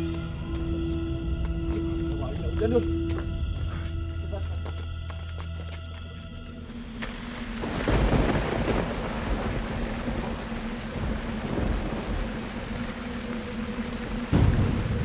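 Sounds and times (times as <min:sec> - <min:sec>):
steady rain: 0:06.6 - 0:15.0
low thunder rumbling: 0:07.2 - 0:15.0
thunder clap: 0:07.6 - 0:13.0, 0:14.3 - 0:15.0.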